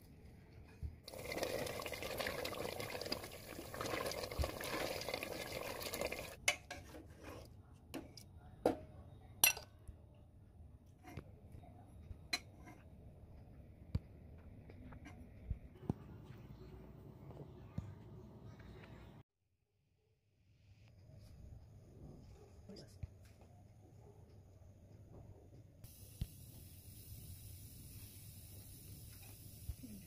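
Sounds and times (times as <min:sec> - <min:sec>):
curry sizzling in pot: 0:01.1 - 0:06.4
utensil clinking on cookware: 0:09.4 - 0:09.7.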